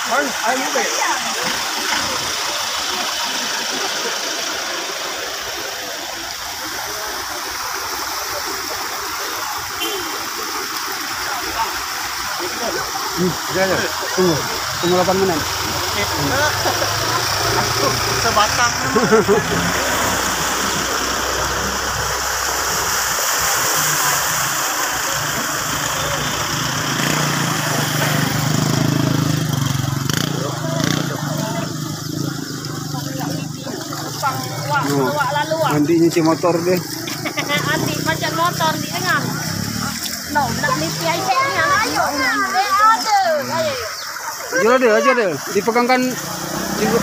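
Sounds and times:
floodwater rushing: 0.0 - 47.0
vehicle driving through water: 0.0 - 47.0
motorcycle engine running: 14.1 - 21.3, 25.4 - 41.0.

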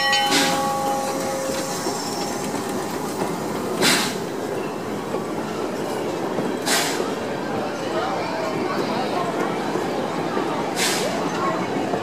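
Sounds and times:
steam train rumbling and clattering: 0.0 - 12.0
steam hiss: 0.3 - 4.3, 6.6 - 7.0, 10.8 - 11.2.

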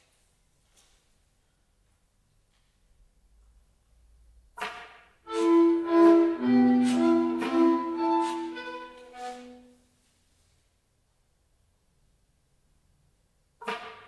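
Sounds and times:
chamber ensemble playing: 5.3 - 9.7.

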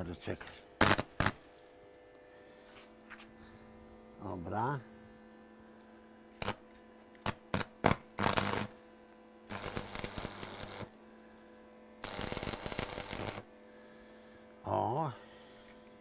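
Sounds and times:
steady electrical hum: 0.0 - 16.0
hissing crackling bursts: 0.8 - 1.5, 7.2 - 8.8, 9.5 - 10.9, 12.0 - 13.5.

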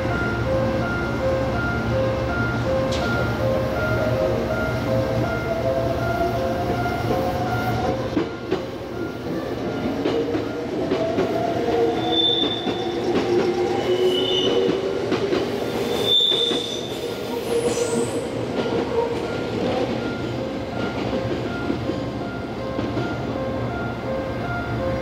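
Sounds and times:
crossing alarm bell ringing: 0.0 - 14.7
electric train whine: 0.0 - 25.0
wheel squeals: 12.0 - 14.7, 15.7 - 18.2.

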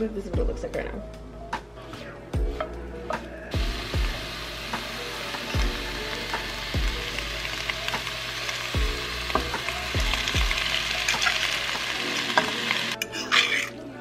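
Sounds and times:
vegetables sizzling in a frying pan: 3.6 - 13.0
utensil stirring food in a pan: 3.6 - 13.7.

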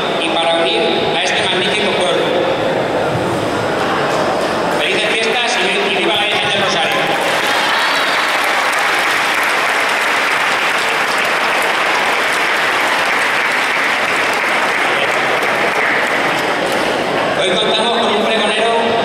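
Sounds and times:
audience clapping: 6.7 - 17.2.

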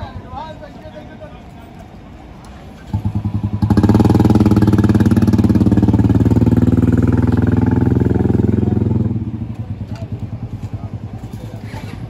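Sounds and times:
vehicle engine running: 2.8 - 12.0.

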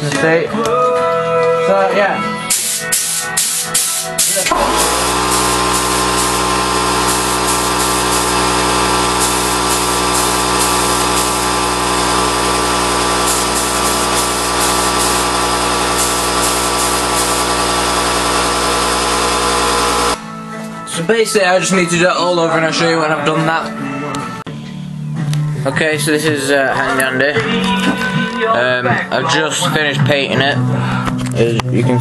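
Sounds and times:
hissing spray: 2.5 - 20.2
paint spray gun buzzing: 2.5 - 20.2.

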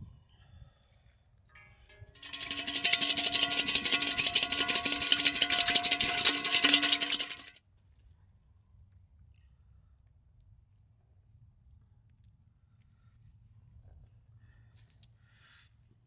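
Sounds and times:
whisk scraping metal bowl: 2.2 - 7.5.

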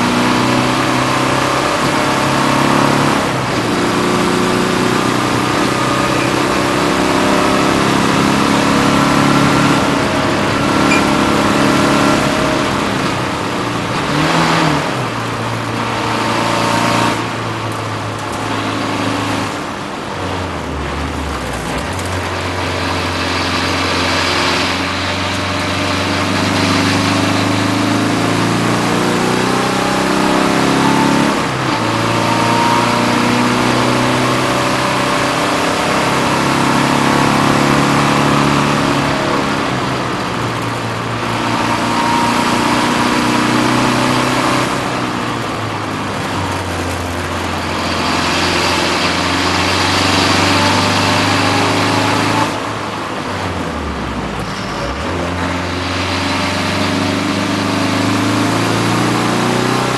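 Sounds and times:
race car engine revving: 0.0 - 59.9
wind and road noise: 0.0 - 59.9.

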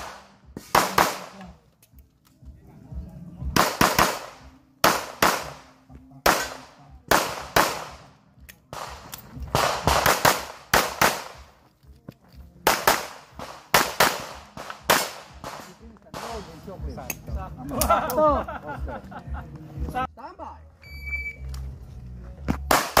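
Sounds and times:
pistol shots: 0.0 - 1.6, 3.5 - 8.1, 8.7 - 11.6, 12.6 - 16.7, 22.7 - 23.0.

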